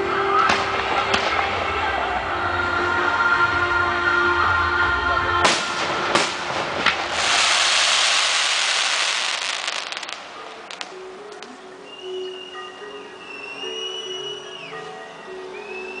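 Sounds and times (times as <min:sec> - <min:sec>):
music: 0:00.0 - 0:16.0
firework bangs: 0:05.4 - 0:11.0
hissing crackle of bursting shells: 0:05.5 - 0:11.0.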